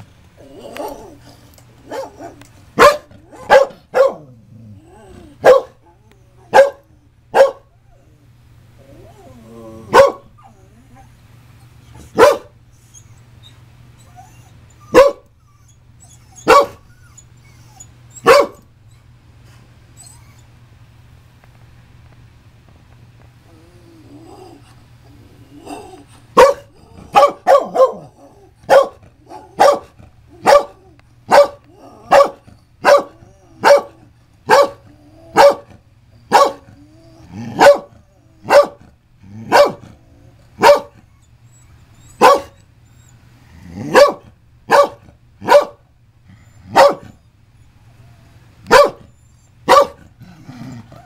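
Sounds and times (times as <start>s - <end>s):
dog barking: 1.9s - 4.3s, 5.4s - 5.8s, 6.5s - 7.7s, 9.9s - 10.3s, 12.1s - 12.6s, 14.9s - 15.3s, 16.4s - 16.8s, 18.2s - 18.6s, 26.4s - 34.8s, 35.4s - 36.7s, 37.5s - 38.8s, 39.5s - 39.8s, 40.6s - 41.0s, 42.2s - 42.6s, 43.8s - 45.8s, 46.7s - 47.2s, 48.7s - 49.1s, 49.7s - 50.1s.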